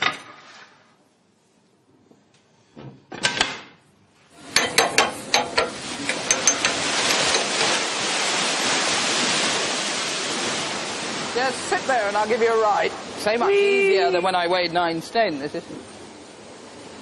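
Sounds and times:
water rushing: 0:04.5 - 0:17.0.

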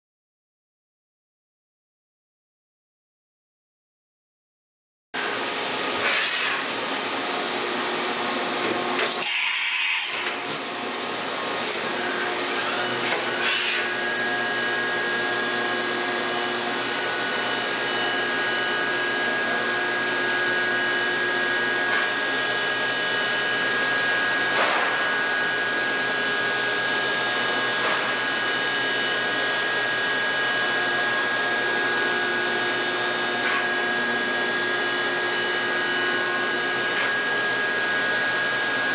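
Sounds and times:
machine hum and hiss: 0:05.2 - 0:38.9.

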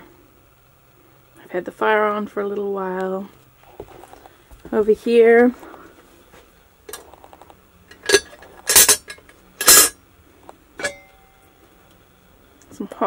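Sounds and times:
metal pot lid clanking: 0:07.9 - 0:10.0, 0:10.8 - 0:11.1.

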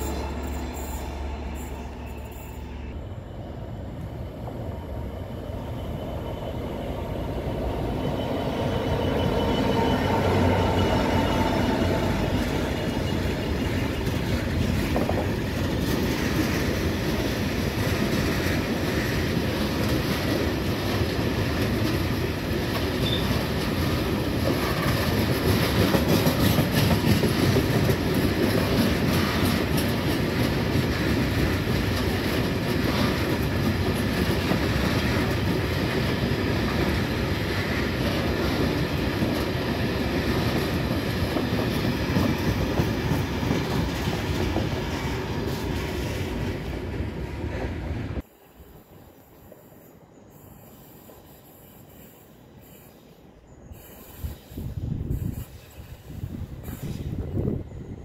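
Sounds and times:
diesel locomotive passing: 0:00.0 - 0:58.0
wagon wheels clicking over rail joints: 0:13.8 - 0:36.8.

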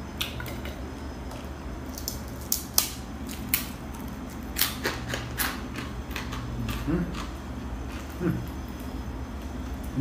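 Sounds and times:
steady low hum: 0:00.0 - 0:10.0
crispy snack crunching: 0:01.9 - 0:08.6.

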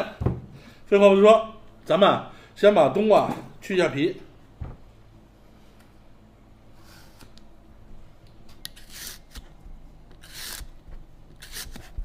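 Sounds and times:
peeler scraping melon rind: 0:08.6 - 0:09.4, 0:10.1 - 0:10.7, 0:11.3 - 0:12.0.

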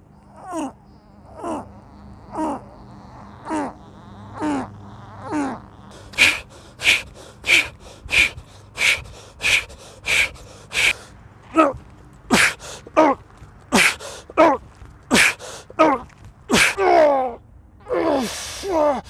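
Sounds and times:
man groaning: 0:00.4 - 0:10.2, 0:11.6 - 0:13.2, 0:13.8 - 0:19.0
man breathing heavily: 0:05.3 - 0:13.1, 0:13.7 - 0:14.4, 0:15.1 - 0:15.8, 0:18.1 - 0:19.0.

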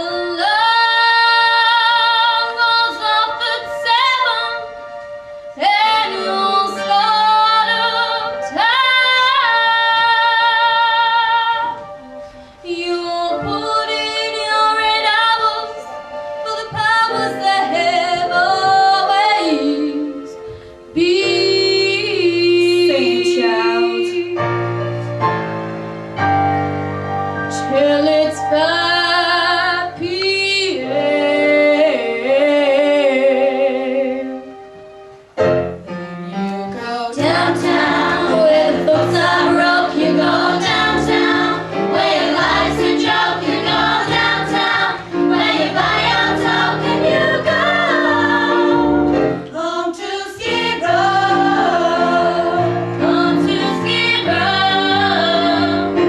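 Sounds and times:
girl singing into microphone: 0:00.0 - 0:04.6, 0:05.6 - 0:11.8, 0:12.7 - 0:15.9, 0:16.5 - 0:24.4, 0:27.6 - 0:34.2
musical accompaniment: 0:00.0 - 0:56.0.

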